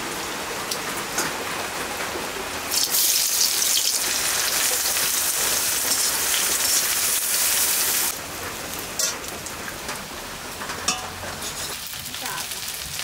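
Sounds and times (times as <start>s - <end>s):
onions sizzling in hot oil: 2.7s - 13.0s
metal spatula scraping plate: 10.9s - 11.8s.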